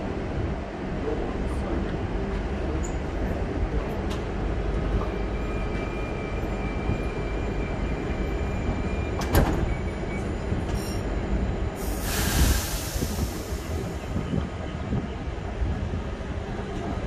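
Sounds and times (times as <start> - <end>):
train motors rumbling: 0.0 - 17.0
train doors knocking shut: 9.1 - 9.9
hiss of air: 11.8 - 14.0.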